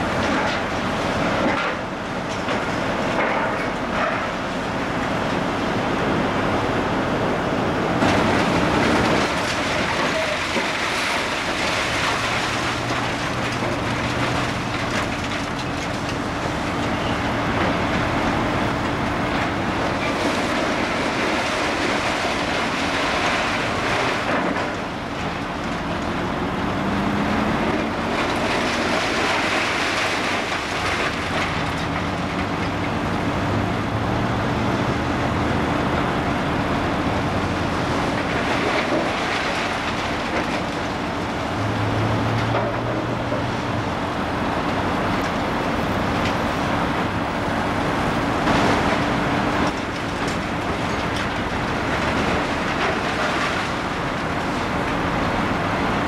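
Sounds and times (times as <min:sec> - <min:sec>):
excavator diesel engine: 0:00.0 - 0:56.0
metal and concrete debris clattering: 0:08.0 - 0:17.0, 0:38.1 - 0:41.2.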